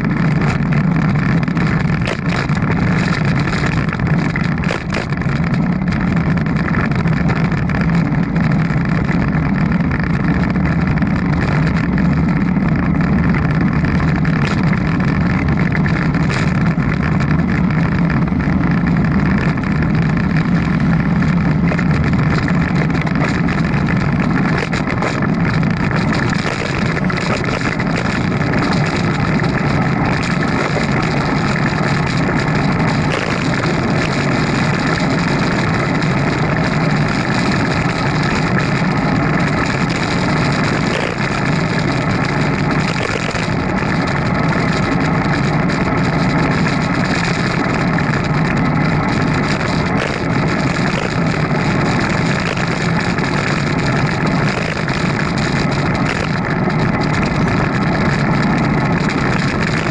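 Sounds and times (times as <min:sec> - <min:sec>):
bicycle rolling road noise: 0:00.0 - 0:59.9
faint steady hum: 0:00.0 - 0:59.9
wind on microphone: 0:00.0 - 0:59.9.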